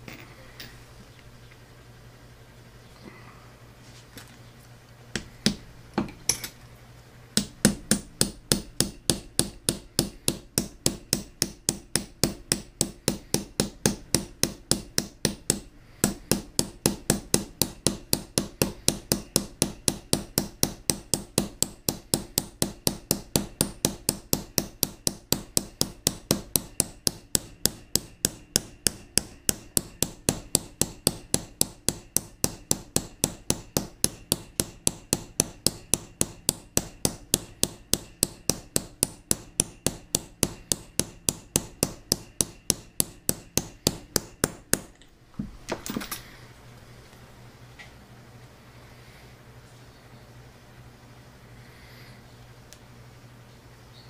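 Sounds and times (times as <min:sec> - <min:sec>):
hammer tapping on steel: 0:07.4 - 0:45.1.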